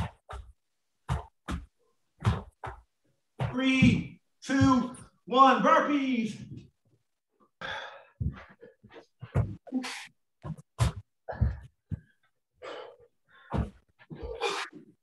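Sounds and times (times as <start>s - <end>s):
hard sharp breaths: 7.6s - 9.1s, 12.6s - 14.9s.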